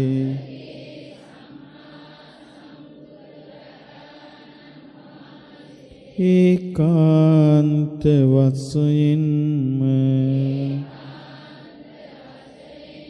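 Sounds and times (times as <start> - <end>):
man chanting amplified: 0.0 - 0.7, 6.1 - 11.4
voices chanting in unison: 0.0 - 13.0.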